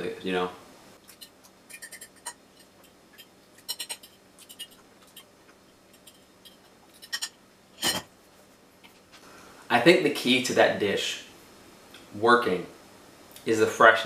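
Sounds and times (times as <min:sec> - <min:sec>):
fork scraping ceramic plate: 0:01.1 - 0:05.3, 0:05.9 - 0:08.0.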